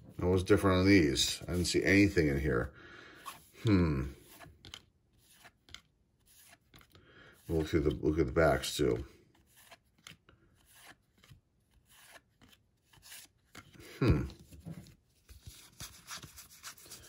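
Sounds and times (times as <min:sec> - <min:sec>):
trading cards shuffling: 0:04.2 - 0:08.0, 0:09.3 - 0:17.0.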